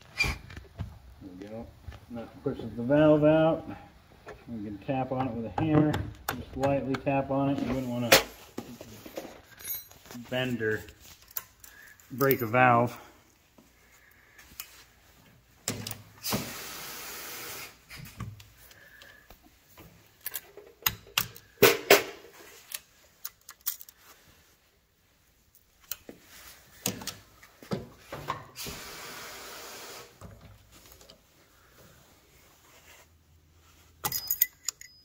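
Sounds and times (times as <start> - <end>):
steady hiss: 16.1 - 18.6, 28.5 - 30.3.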